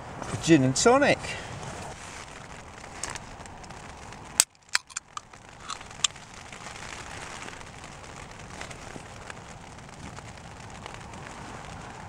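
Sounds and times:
rain pattering on a tent: 0.0s - 12.0s
clicks and taps of a can cap: 4.8s - 6.1s.

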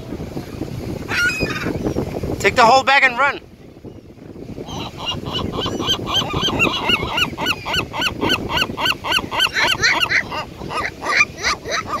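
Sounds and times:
gulls yelping: 4.6s - 12.0s.

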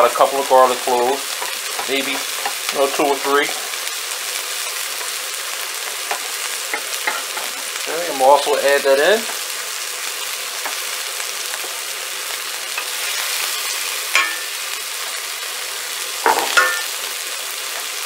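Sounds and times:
vegetables sizzling in oil: 0.0s - 18.0s.

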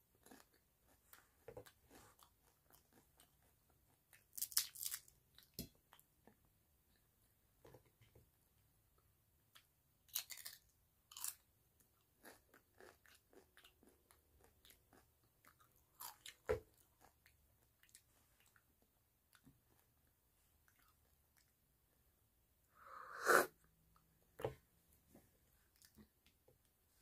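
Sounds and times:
tortilla chips crunched and chewed: 4.2s - 5.6s, 10.1s - 11.4s.

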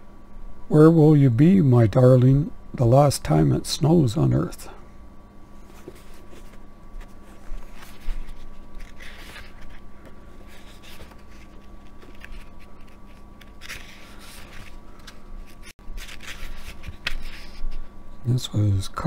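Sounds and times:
book pages rustling: 5.6s - 17.9s.

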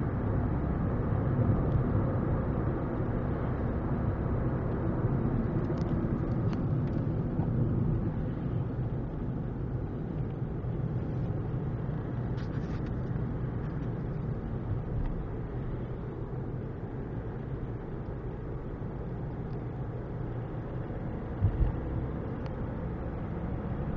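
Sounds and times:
car engine and road rumble: 0.0s - 23.9s
short thumps: 21.4s - 21.8s.

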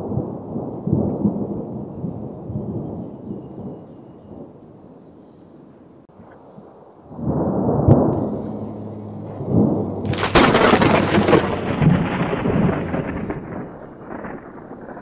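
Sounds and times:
thunder rumbling: 0.0s - 5.2s, 6.1s - 15.0s
lightning strike crack: 7.1s - 15.0s.

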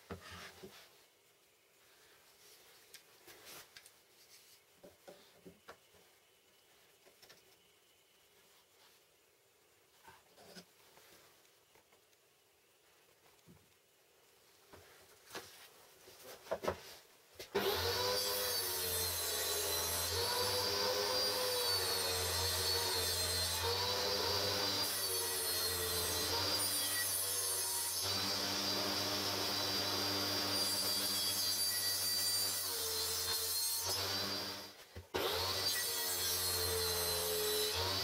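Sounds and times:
table saw cutting wood: 17.6s - 38.0s.

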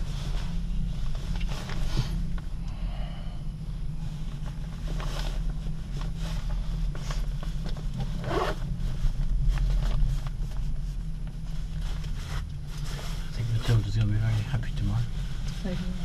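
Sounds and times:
rustling: 0.0s - 2.6s, 3.8s - 16.0s.

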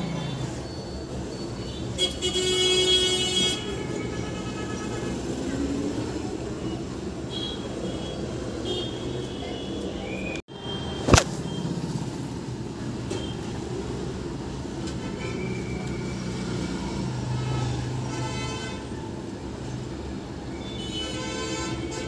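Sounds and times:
traffic passing: 0.0s - 20.6s
sharp click: 11.1s - 11.4s.

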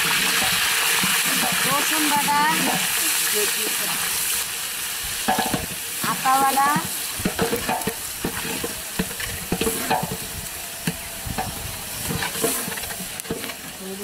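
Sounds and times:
steady hiss: 0.0s - 14.0s
ladle scraping metal pot: 6.3s - 13.8s.

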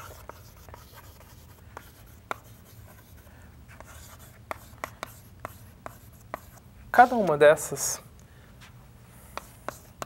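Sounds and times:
chalk tapping on board: 0.0s - 3.0s, 3.8s - 7.3s, 9.3s - 10.0s
chalk scratching on blackboard: 0.0s - 7.4s, 9.3s - 10.0s.

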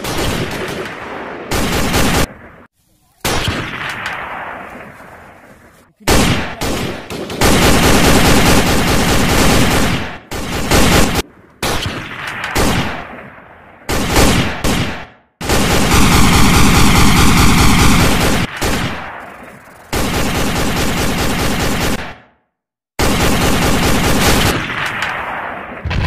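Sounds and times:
machine-gun fire bursts: 0.0s - 2.3s, 6.1s - 13.1s, 13.9s - 22.4s, 23.0s - 26.0s.

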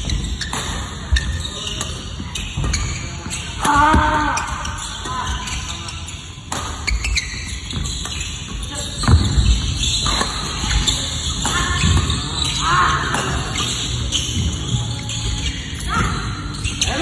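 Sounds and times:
footfalls on wooden court: 8.9s - 10.2s
racket striking shuttlecock: 10.0s - 10.8s.

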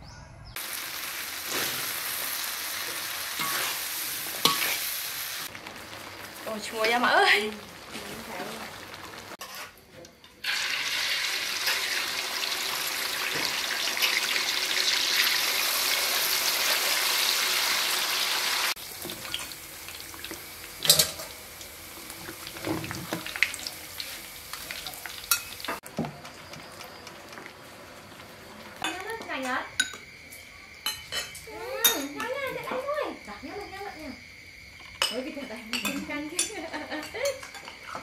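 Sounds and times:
fish deep-frying sizzle: 0.6s - 9.8s, 10.4s - 30.9s
metal utensil clinks and scrapes: 3.4s - 3.8s.

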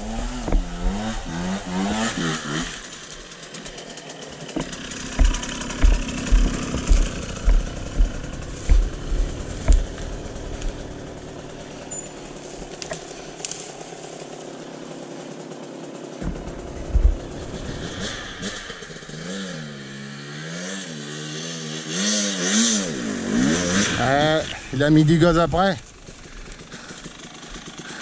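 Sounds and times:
motorcycle running at low revs: 0.0s - 28.0s
heavy low thumps: 4.6s - 11.7s.

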